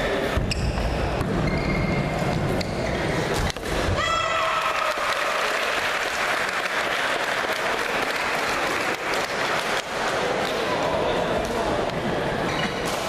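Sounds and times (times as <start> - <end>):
spectators applauding and cheering: 4.0 - 10.4.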